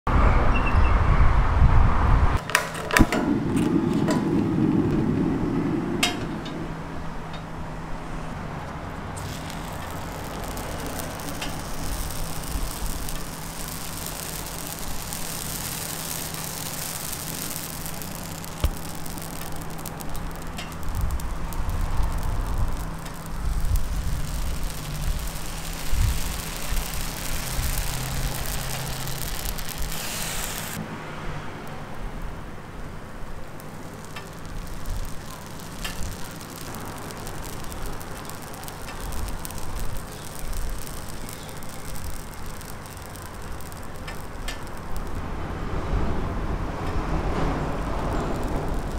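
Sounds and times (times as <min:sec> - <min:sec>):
batter sizzling on griddle: 0:02.4 - 0:30.8, 0:31.7 - 0:48.9
low rumble: 0:03.0 - 0:08.3, 0:09.2 - 0:30.8
clicks: 0:08.6 - 0:30.8, 0:33.5 - 0:45.2.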